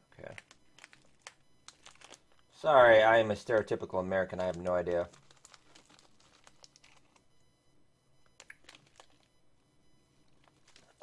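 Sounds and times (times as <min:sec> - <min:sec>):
snack wrapper crinkling: 0:00.2 - 0:02.4, 0:04.2 - 0:07.3, 0:08.4 - 0:09.3, 0:10.3 - 0:11.0.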